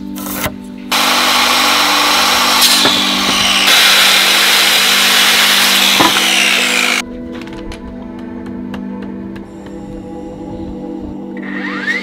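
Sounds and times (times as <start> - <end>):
circular saw cutting wood: 0.9 - 7.0, 11.4 - 12.0.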